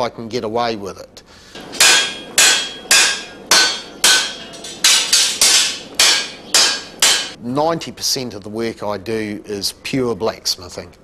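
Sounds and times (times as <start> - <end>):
hammer striking metal on anvil: 1.6 - 7.4.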